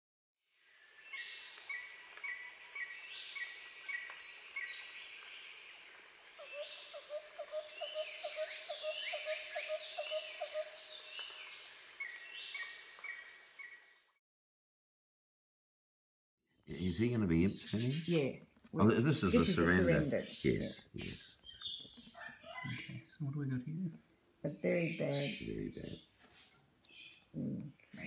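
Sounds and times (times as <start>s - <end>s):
birds chirping and whistling: 1.0s - 14.0s, 17.4s - 18.2s, 19.8s - 23.1s, 24.5s - 27.5s.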